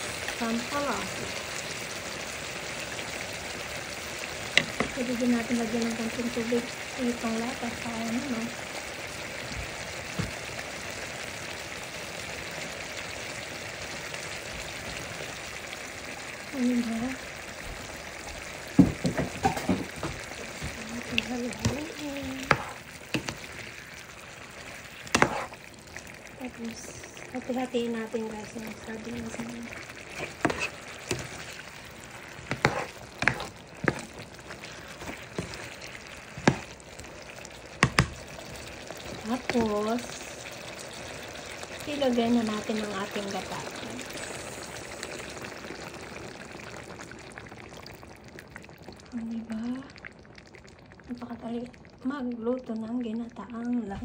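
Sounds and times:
broth bubbling in a pan: 0.0s - 54.0s
spatula knocking against a pan: 22.4s - 23.4s, 36.4s - 36.7s, 37.8s - 38.2s.

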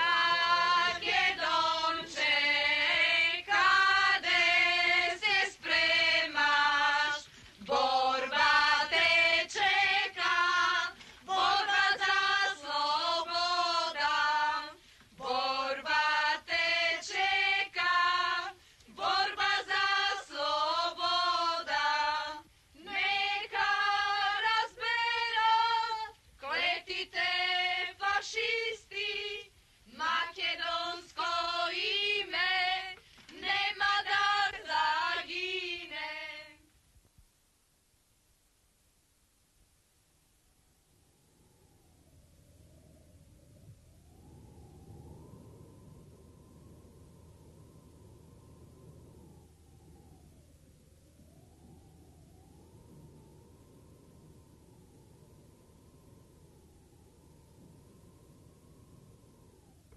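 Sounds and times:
women singing together: 0.0s - 36.7s.

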